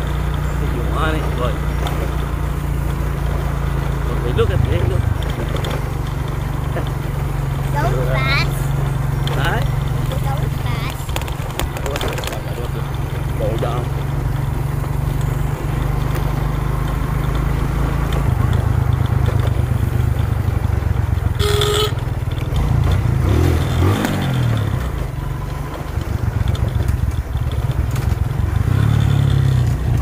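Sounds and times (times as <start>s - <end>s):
motorcycle engine running: 0.0s - 30.0s
short horn beep: 21.4s - 22.0s.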